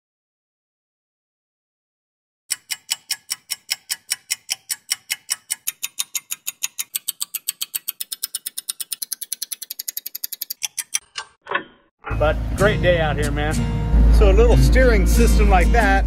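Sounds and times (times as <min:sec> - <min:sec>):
rapid clock-like ticking: 0:02.5 - 0:11.4.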